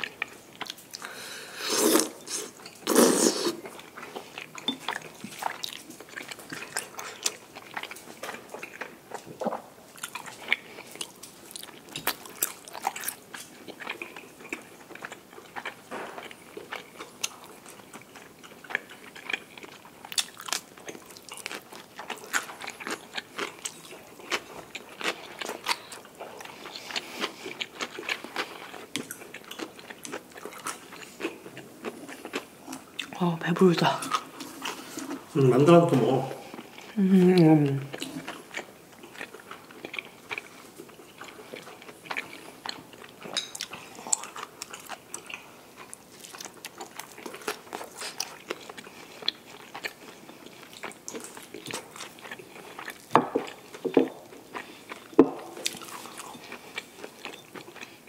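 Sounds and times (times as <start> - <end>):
chewing with crunches: 0.0 - 58.0.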